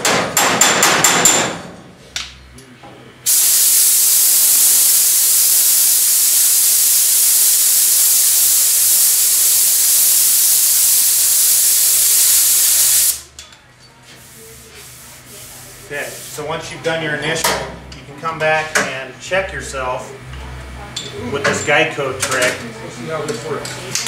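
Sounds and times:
air blow gun hissing: 3.3 - 13.2.

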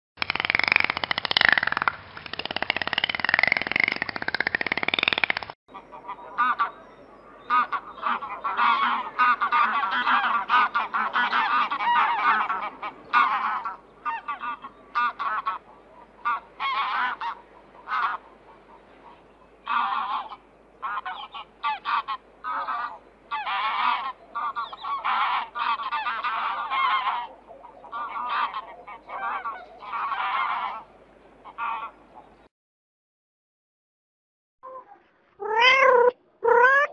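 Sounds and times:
geese honking: 5.7 - 32.4.

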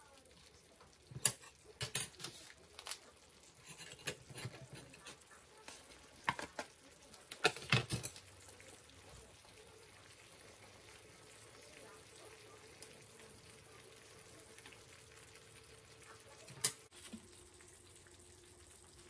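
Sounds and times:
food simmering in pan: 0.0 - 19.0
fish cake clattering into pan: 6.2 - 8.3.

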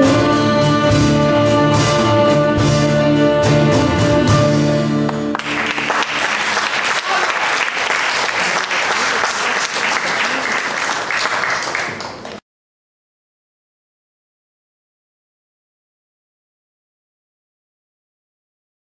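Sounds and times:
audience applause: 5.1 - 12.4.

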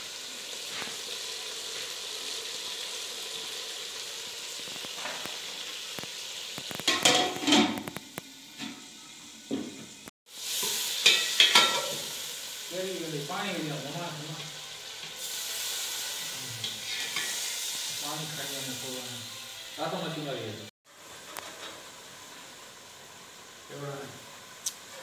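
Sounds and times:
fish sizzling in a pot: 0.0 - 25.0
metal ladle scraping a pot: 16.6 - 17.5.

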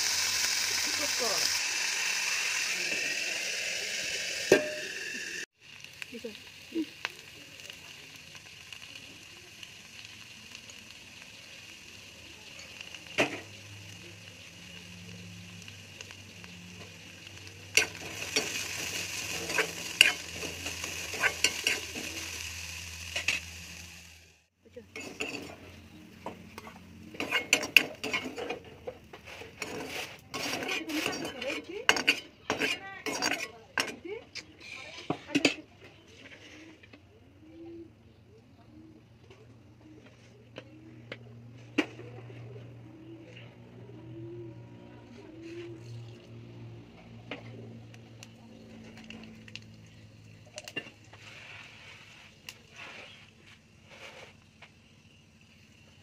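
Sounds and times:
oil sizzling: 0.0 - 35.6, 41.1 - 56.0
metal ladle scraping and clinking pan: 17.7 - 22.2, 24.9 - 25.8, 27.1 - 28.7, 29.3 - 34.0.

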